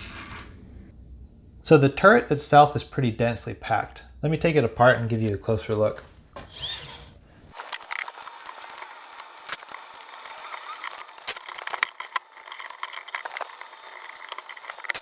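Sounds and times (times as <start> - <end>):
plastic parts clicking and rattling: 7.5 - 15.0.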